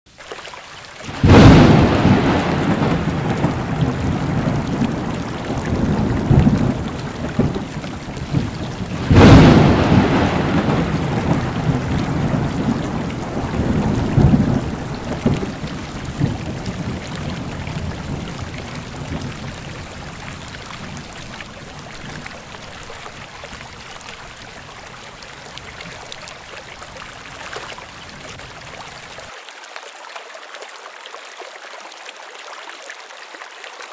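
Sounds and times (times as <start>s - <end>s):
thunder rumbling: 1.1s - 22.8s
rain hissing: 1.1s - 29.3s.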